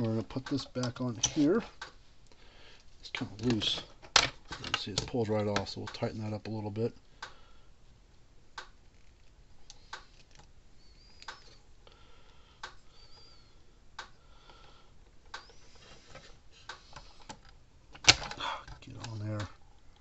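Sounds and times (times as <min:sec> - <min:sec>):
wire strippers clicking: 0:11.1 - 0:11.6.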